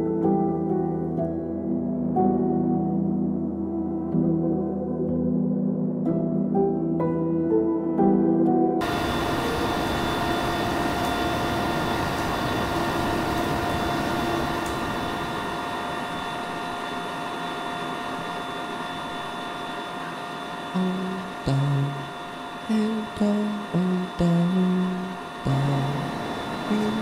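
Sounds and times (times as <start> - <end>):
kiln burners roaring: 8.8 - 27.0
whining tones: 8.8 - 27.0.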